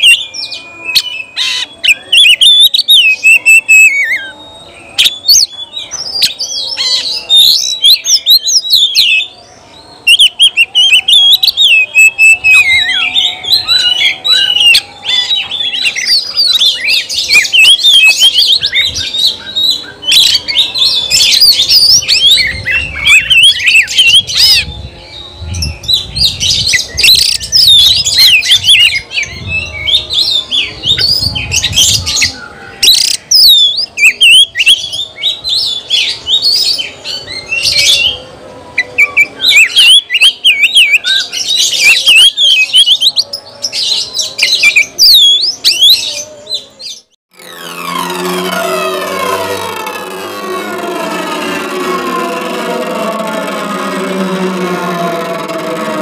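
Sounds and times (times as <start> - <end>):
bird singing whistles and trills: 0.0 - 38.2, 38.8 - 47.1
low rumble: 47.4 - 56.0.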